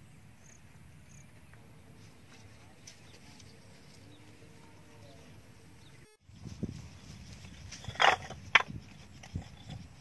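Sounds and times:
insect chirp: 0.0 - 1.6.

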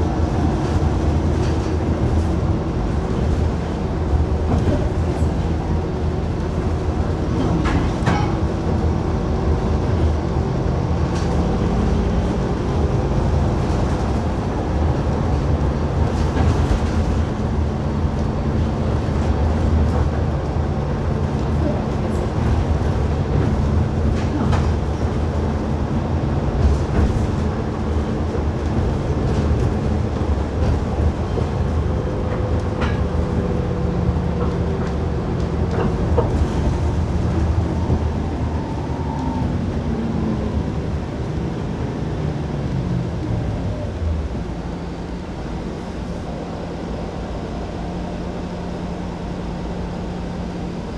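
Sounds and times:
bus engine and road rumble: 0.0 - 50.9.

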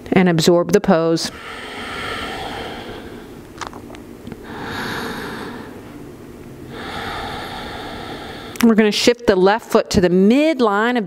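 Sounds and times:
woman breathing slowly: 1.3 - 3.5, 4.4 - 6.0, 6.6 - 8.6.

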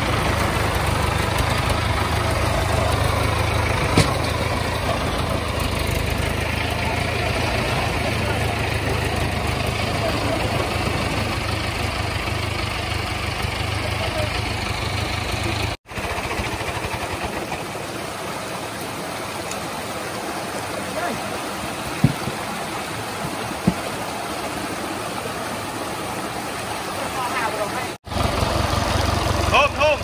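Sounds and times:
stream rushing over rocks: 0.0 - 14.3, 15.9 - 30.0
tractor engine idling: 0.0 - 30.0
sharp knocks: 22.0 - 22.5, 23.2 - 23.9.

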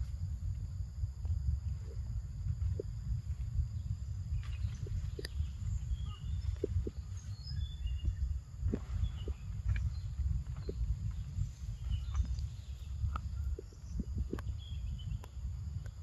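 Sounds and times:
low forest rumble: 0.0 - 16.0
faint high bird chirps: 4.3 - 15.4
small clicks and snaps: 5.2 - 5.4, 15.2 - 16.0.

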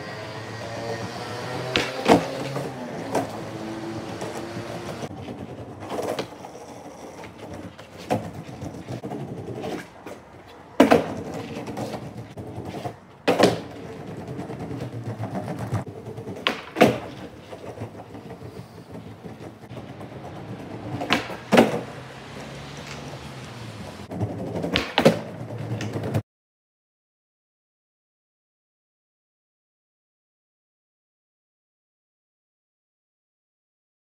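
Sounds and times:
skateboard wheels rolling on concrete: 0.0 - 26.2
skateboard clacks: 0.6 - 26.2.

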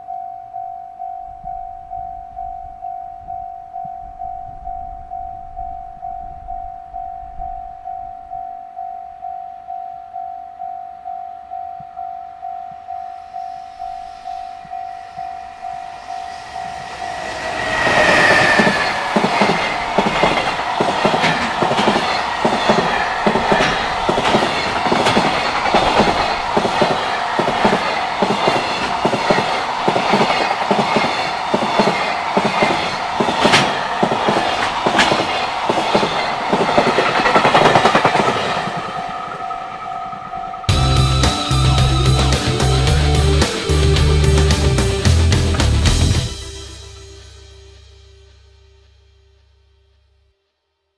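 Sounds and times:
level-crossing warning bell: 0.0 - 45.4
freight train passing: 10.1 - 47.5.

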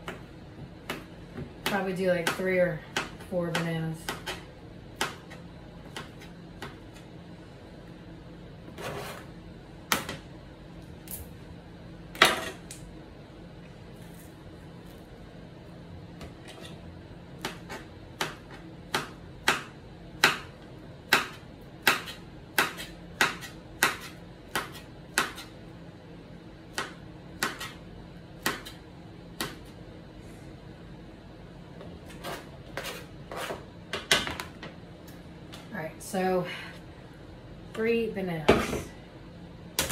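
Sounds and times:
knife chopping on cutting board: 0.0 - 6.8, 17.4 - 20.5, 21.1 - 25.5, 26.7 - 27.8, 28.4 - 28.8.

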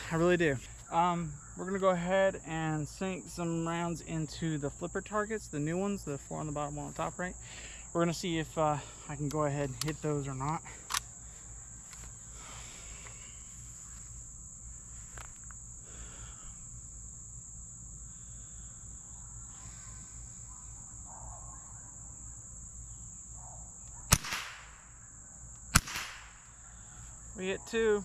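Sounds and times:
insect drone: 0.0 - 28.0
rifle shot: 24.1 - 24.9, 25.7 - 26.4.

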